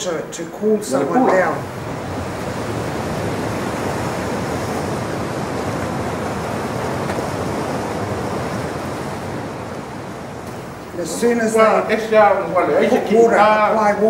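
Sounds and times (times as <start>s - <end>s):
waterfall rushing: 0.8s - 6.8s.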